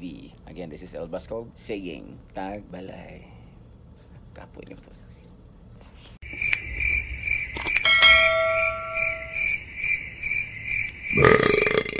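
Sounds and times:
high chirping: 0:06.3 - 0:11.2
bright bell ding: 0:07.8 - 0:09.5.

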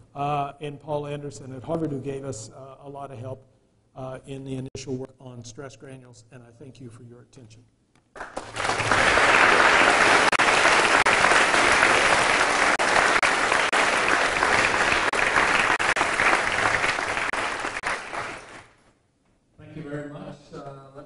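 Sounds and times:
audience applauding: 0:08.2 - 0:18.8.

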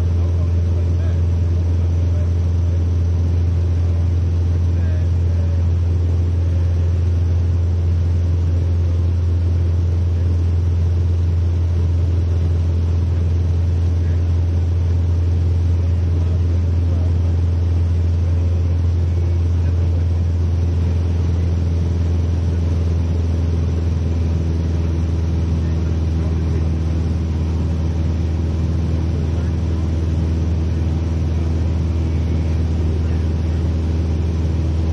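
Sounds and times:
aircraft engine droning: 0:00.0 - 0:34.9.

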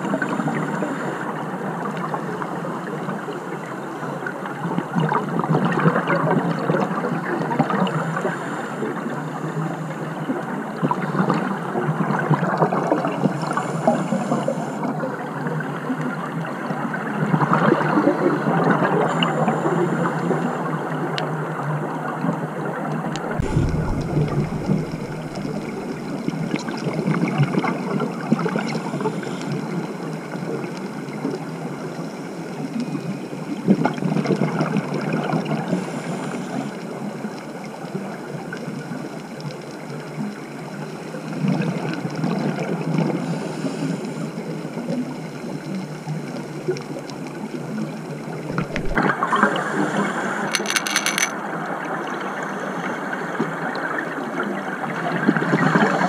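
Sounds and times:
underwater regulator bubbles gurgling: 0:22.9 - 0:29.8, 0:48.3 - 0:50.1
steady hiss: 0:23.2 - 0:27.0.

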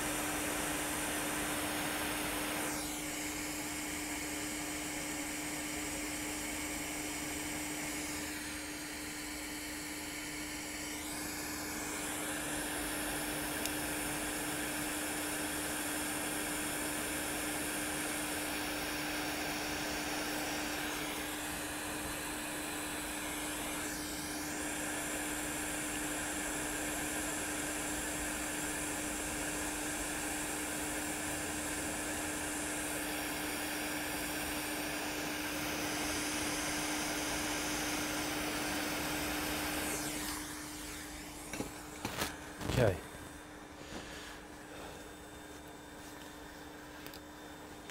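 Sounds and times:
hot air gun rushing hiss: 0:00.0 - 0:03.2
steady hum: 0:00.0 - 0:16.2, 0:16.8 - 0:47.9.

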